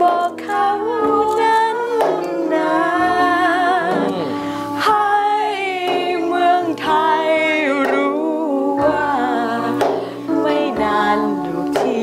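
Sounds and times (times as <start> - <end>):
steady held accompaniment: 0.0 - 12.0
women singing together: 0.0 - 12.0.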